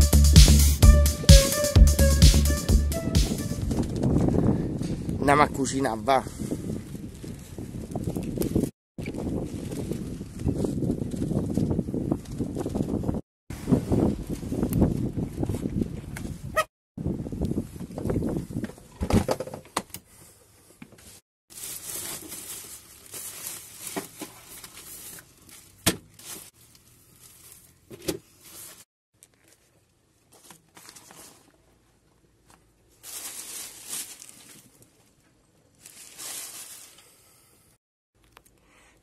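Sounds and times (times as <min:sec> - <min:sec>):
plastic bag crinkling and rustling: 0:21.5 - 0:37.0.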